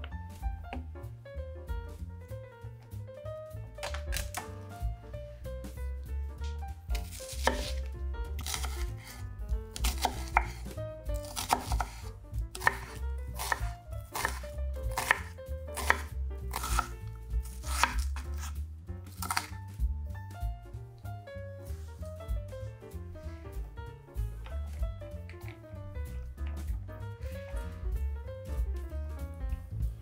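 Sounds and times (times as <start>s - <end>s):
knife chopping on wooden board: 3.8s - 4.5s, 6.9s - 19.6s.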